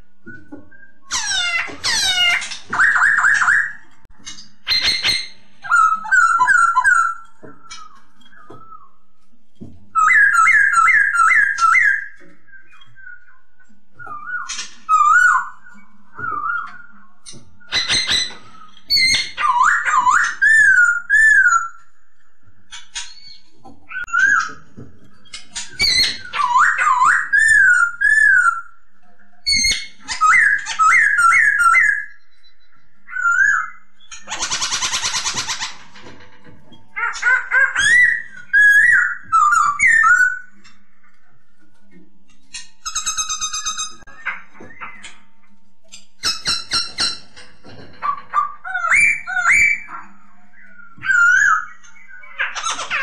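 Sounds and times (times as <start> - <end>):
bird singing whistled phrases: 10.0 - 21.8, 25.8 - 28.8, 37.6 - 40.5, 48.4 - 52.4.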